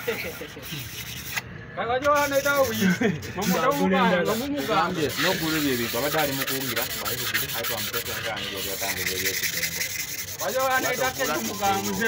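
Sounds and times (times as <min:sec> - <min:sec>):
hand scrubbing cylinder bore: 0:02.0 - 0:12.0.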